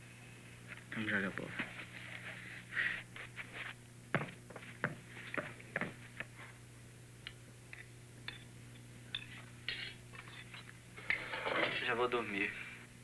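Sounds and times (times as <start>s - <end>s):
spoons clinking on plates: 9.1s - 11.4s.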